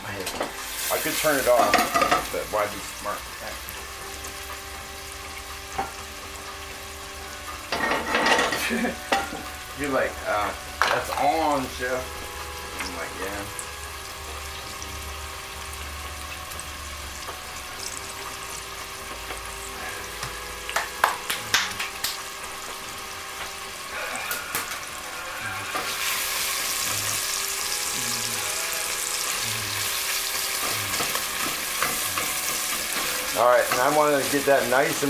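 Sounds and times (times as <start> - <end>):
bacon sizzling in hot fat: 0.0 - 35.0
spatula stirring bacon: 22.6 - 35.0.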